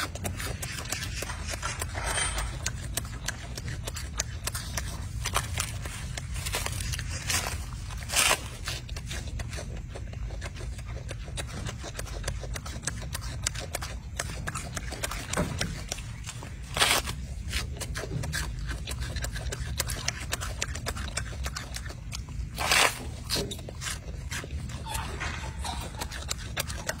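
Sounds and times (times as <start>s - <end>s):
monkey chewing crisp lettuce: 0.0s - 27.0s
leaves rustling: 5.6s - 8.8s.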